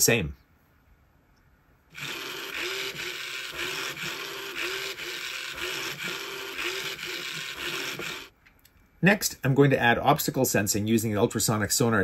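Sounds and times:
robot motors whirring and grinding: 2.0s - 8.3s.

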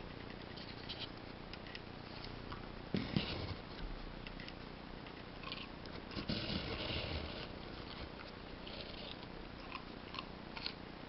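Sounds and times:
puppy crunching a carrot: 7.7s - 10.8s.

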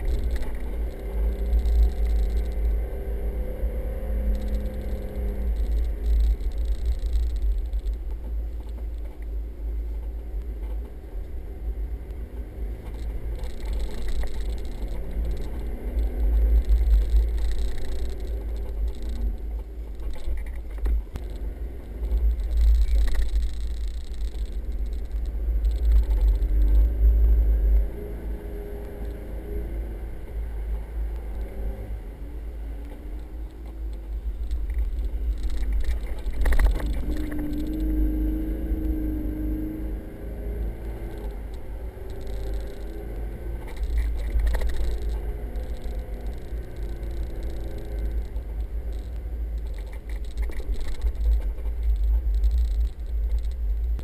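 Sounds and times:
car engine rumbling: 0.0s - 54.0s.

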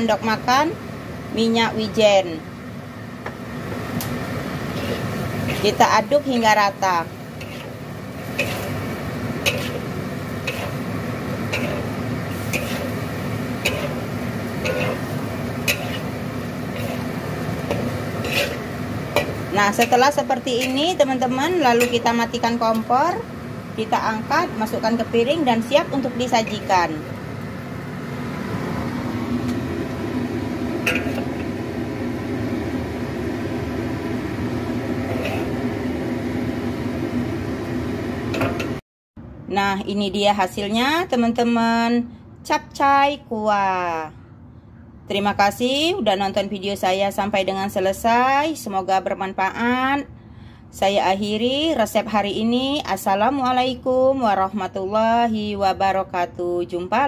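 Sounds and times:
mechanical fan hum: 0.0s - 57.0s
pan sizzling: 3.2s - 38.8s
metal ladle scraping a wok: 4.6s - 5.9s, 7.4s - 21.0s, 21.6s - 22.2s, 30.9s - 31.5s, 35.0s - 35.6s.

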